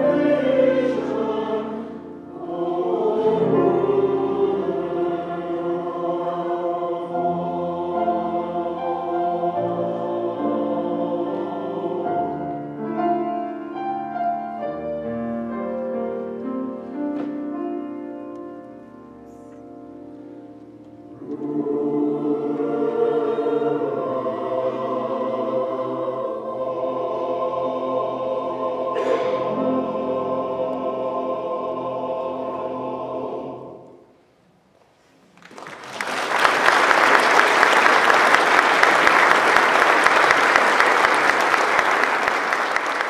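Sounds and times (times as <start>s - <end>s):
mixed choir singing: 0.0s - 13.2s, 21.1s - 34.2s
audience applause: 35.4s - 43.0s.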